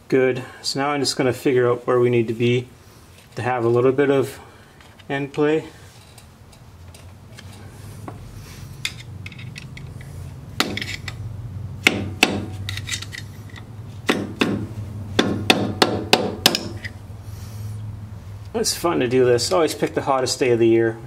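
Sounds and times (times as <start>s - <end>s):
hammer tapping metal: 11.8s - 12.6s, 14.0s - 17.0s.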